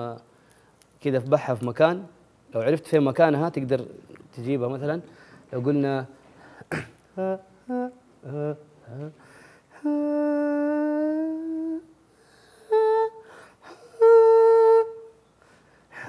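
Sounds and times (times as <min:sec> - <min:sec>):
man singing a cappella: 0:07.1 - 0:15.2.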